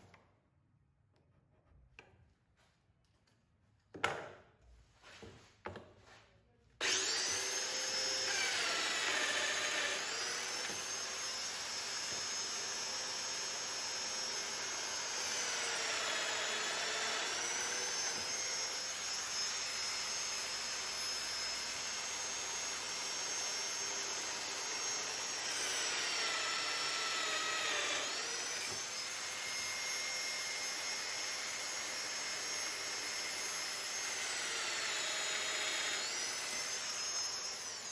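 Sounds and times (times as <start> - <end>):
dust extractor running: 6.8 - 11.0
power tool motor whining: 6.8 - 37.9.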